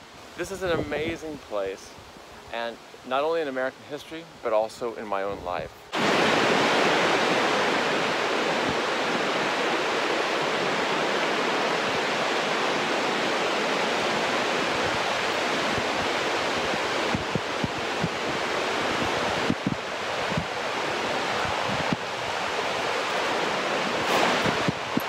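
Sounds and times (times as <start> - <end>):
creek rushing over rapids: 5.8 - 25.0.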